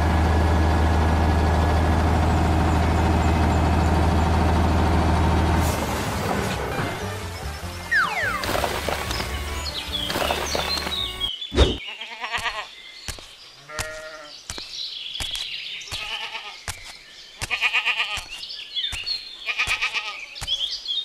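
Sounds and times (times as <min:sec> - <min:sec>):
sheep bleating: 0:11.9 - 0:12.7, 0:13.6 - 0:14.3, 0:16.0 - 0:16.6, 0:17.4 - 0:18.3, 0:19.4 - 0:20.3.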